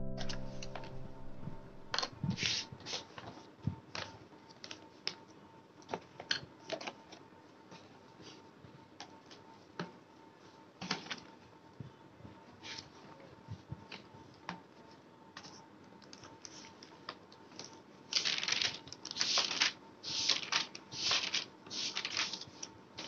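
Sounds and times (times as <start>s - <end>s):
notebook pages rustling: 14.8s - 22.7s.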